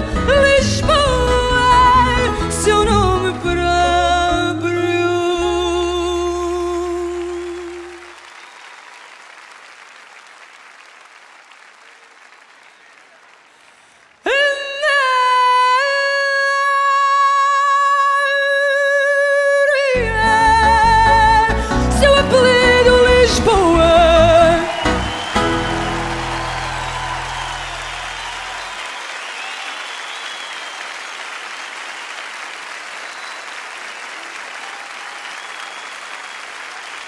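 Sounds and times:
background song: 0.0s - 8.1s, 18.4s - 27.9s
person singing with vibrato: 0.0s - 8.2s, 14.2s - 27.0s
band playing: 20.0s - 28.8s.

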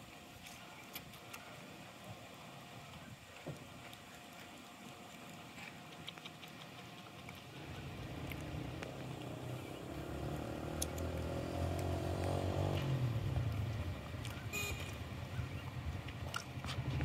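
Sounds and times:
faint small clicks: 5.1s - 7.5s
vehicle engine approaching: 7.4s - 15.8s.

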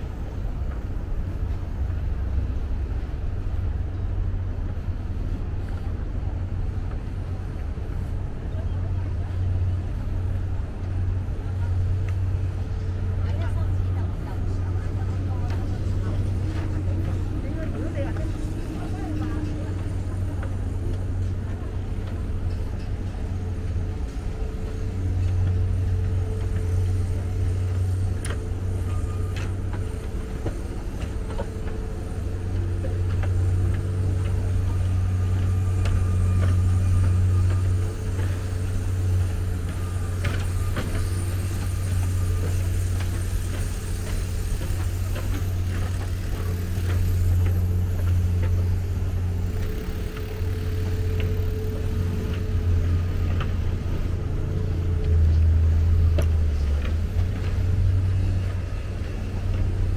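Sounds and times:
road traffic rumble: 0.0s - 59.9s
faint ticks: 55.0s - 58.6s.

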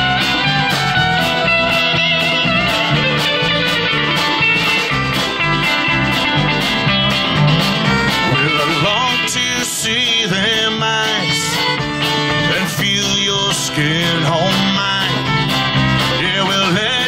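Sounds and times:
bass guitar: 0.0s - 17.0s
congas: 0.0s - 17.0s
fiddle: 0.0s - 17.0s
strummed acoustic guitar: 0.0s - 17.0s
man singing: 8.2s - 17.0s.

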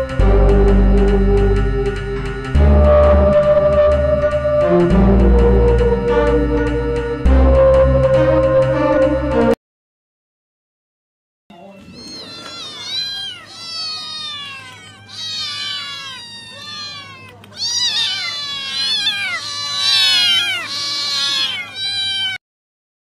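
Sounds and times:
cats meowing: 11.6s - 22.4s.

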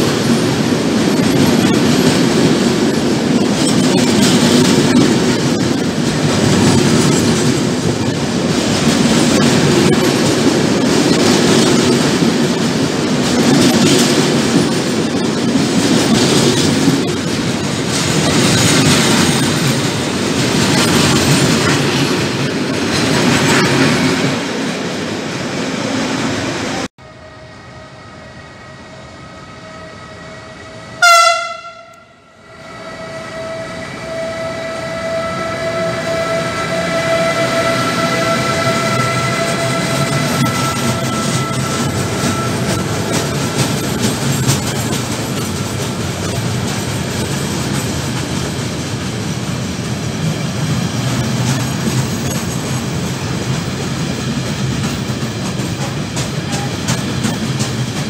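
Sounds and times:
freight train rolling past: 0.0s - 58.0s
locomotive horn blast: 30.0s - 43.1s.

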